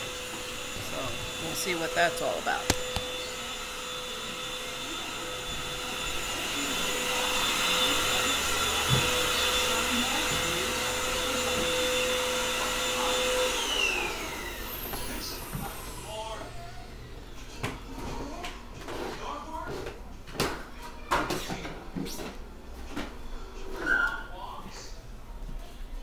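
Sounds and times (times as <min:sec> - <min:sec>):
vacuum cleaner motor whine: 0:00.0 - 0:18.1.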